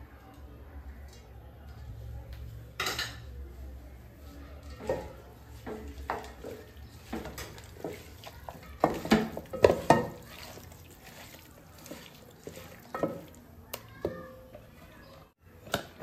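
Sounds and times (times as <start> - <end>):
wet squishing of meat by hand: 5.6 - 14.0.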